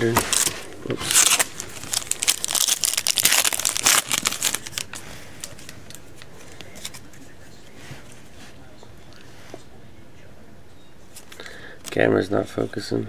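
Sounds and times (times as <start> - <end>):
foil wrapper crinkling: 0.3 - 7.0.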